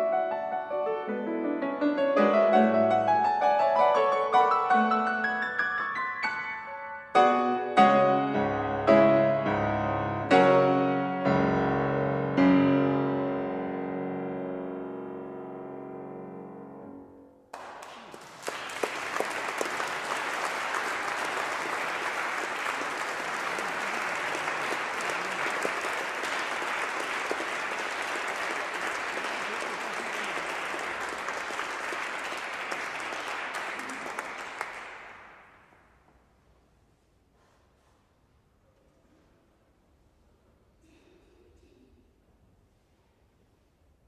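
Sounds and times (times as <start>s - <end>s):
piano chord: 0.0s - 17.4s
audience applause: 17.5s - 35.6s.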